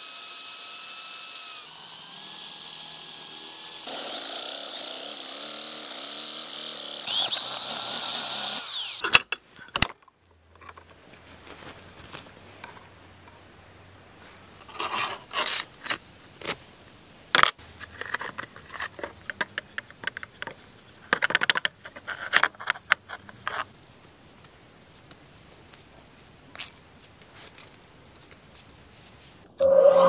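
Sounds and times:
small metal clinks and scrapes: 14.6s - 16.6s, 17.8s - 29.4s.

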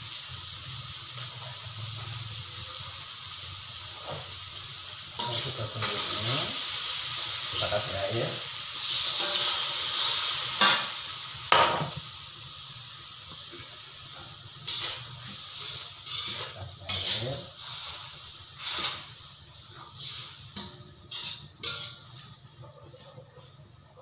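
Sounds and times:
wok hissing and sizzling: 0.0s - 24.0s
metal spatula scraping wok: 5.2s - 7.9s, 8.8s - 10.9s, 14.1s - 23.5s.

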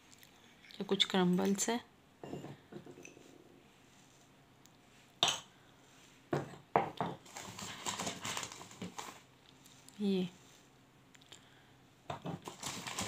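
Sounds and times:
plastic bag rustling: 7.2s - 9.9s, 12.4s - 13.0s.

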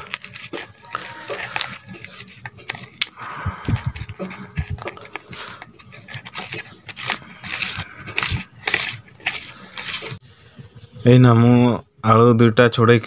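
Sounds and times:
fingers scraping a steel bowl: 0.0s - 10.2s.

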